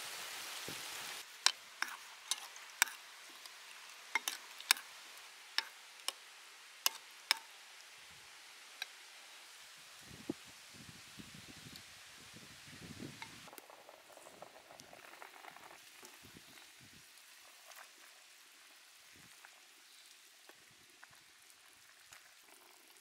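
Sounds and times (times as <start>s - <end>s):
spoon clinking against ceramic bowl: 1.8s - 3.0s, 4.2s - 4.8s.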